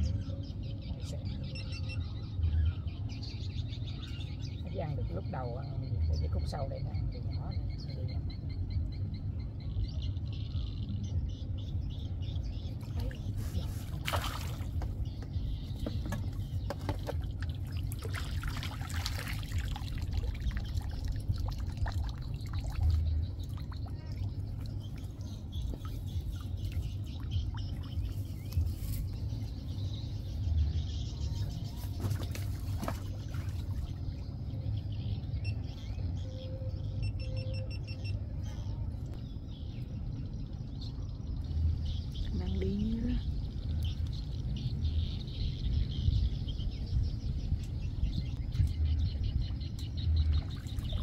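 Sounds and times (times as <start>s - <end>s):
steady low rumble: 0.0s - 51.0s
fish splashing in water: 12.9s - 15.0s, 16.7s - 28.3s.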